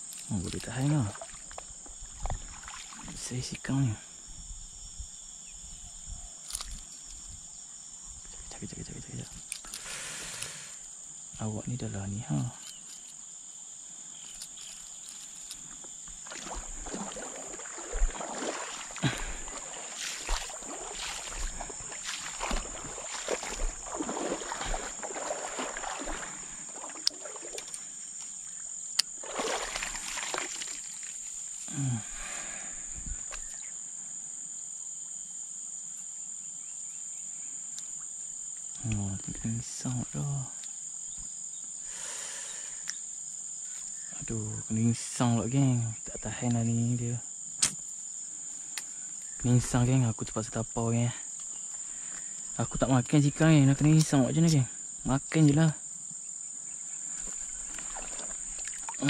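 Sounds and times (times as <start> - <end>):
insects droning: 0.0 - 59.0
person muttering: 31.7 - 32.2.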